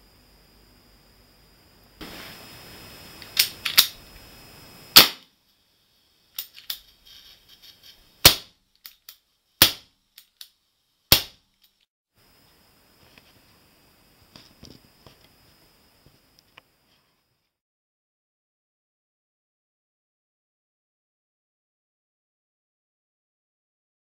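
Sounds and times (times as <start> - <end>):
pistol hammer cocking clicks: 3.3 - 4.0
air pistol shots popping: 4.9 - 5.3, 8.2 - 8.6, 9.6 - 9.9, 11.1 - 11.4.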